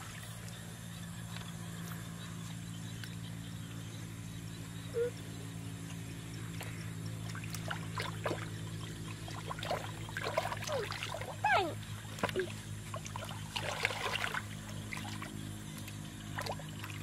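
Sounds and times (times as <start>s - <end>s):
steady low hum: 0.0s - 17.0s
hands splashing in muddy water: 6.5s - 17.0s.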